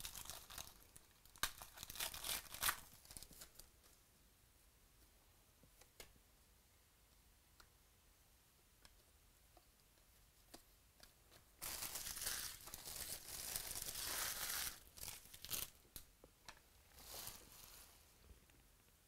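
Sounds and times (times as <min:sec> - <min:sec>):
foil wrapper tearing and crinkling: 0:00.0 - 0:03.6, 0:11.6 - 0:15.8.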